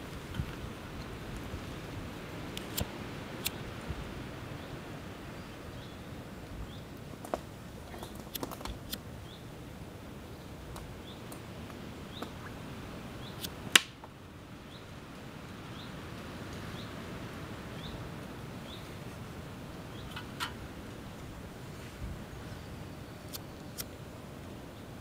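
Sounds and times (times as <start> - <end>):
outdoor hiss: 0.0 - 25.0
sharp clicks and snaps: 2.5 - 3.6.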